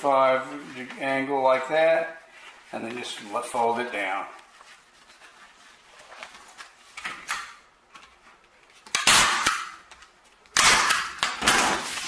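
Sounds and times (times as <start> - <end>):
canvas rustling: 0.3 - 7.0.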